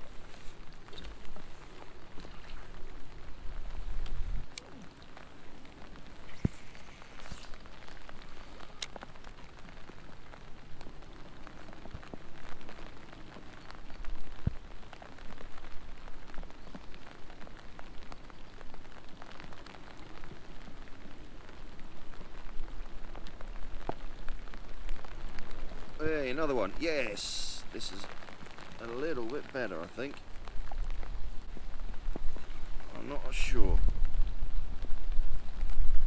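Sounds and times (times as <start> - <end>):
rain falling on river: 0.0 - 36.0.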